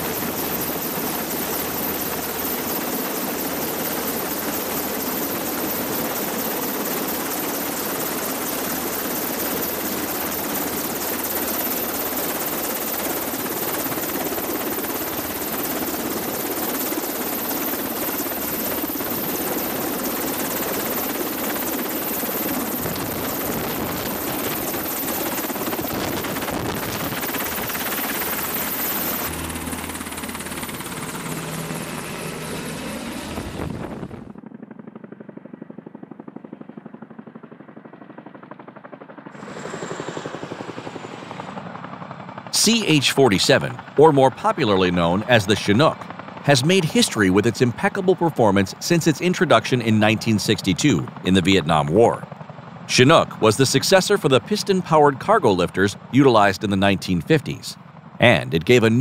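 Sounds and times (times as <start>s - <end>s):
helicopter hovering overhead: 0.0s - 59.0s.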